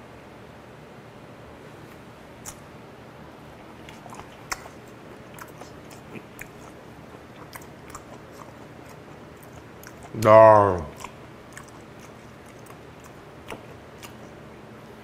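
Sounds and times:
person chewing wetly: 2.4s - 2.7s, 3.4s - 15.0s.

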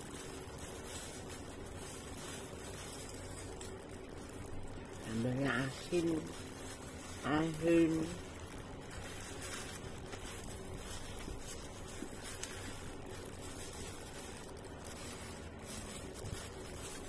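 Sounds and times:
plastic glove rustling: 0.0s - 17.0s
rice squishing: 0.0s - 17.0s
steady background hiss: 0.0s - 17.0s.

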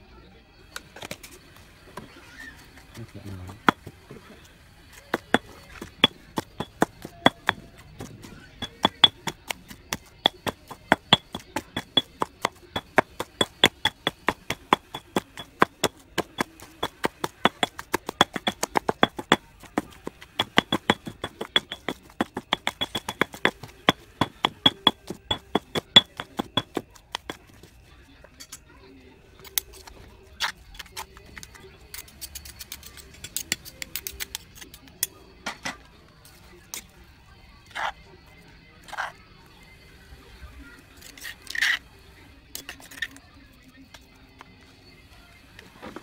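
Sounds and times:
pestle pounding in stone mortar: 3.5s - 3.9s, 5.1s - 27.6s.

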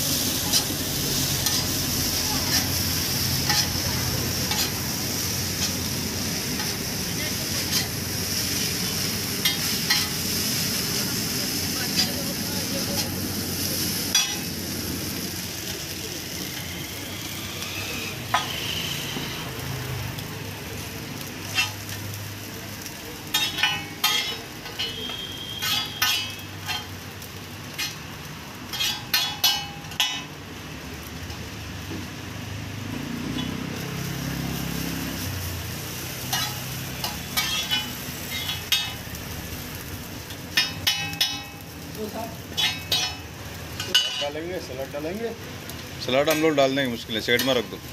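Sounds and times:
noodles sizzling on a griddle: 0.0s - 47.9s
metal spatula clinking and scraping: 0.4s - 2.8s, 3.4s - 3.8s, 4.4s - 4.8s, 7.5s - 8.0s, 9.4s - 10.2s, 14.1s - 14.5s, 21.4s - 22.0s, 23.3s - 27.0s, 27.7s - 28.0s, 28.7s - 30.3s, 36.2s - 39.0s, 40.5s - 41.7s, 42.5s - 44.4s, 46.1s - 47.9s.

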